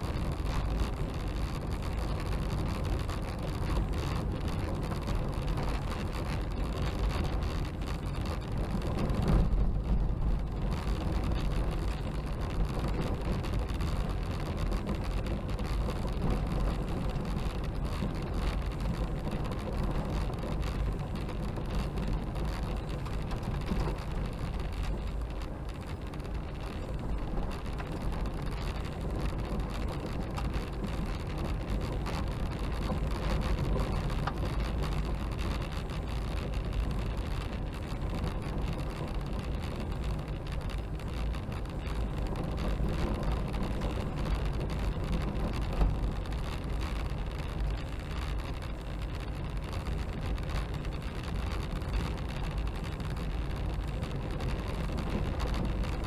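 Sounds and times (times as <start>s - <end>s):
gravel crackling under tyres: 0.0s - 56.0s
tyres and engine rumble: 0.0s - 56.0s.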